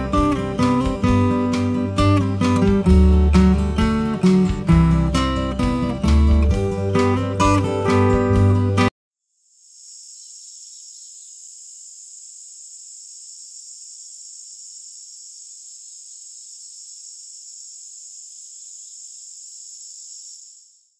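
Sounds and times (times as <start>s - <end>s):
steady high-pitched hiss: 9.2s - 20.9s.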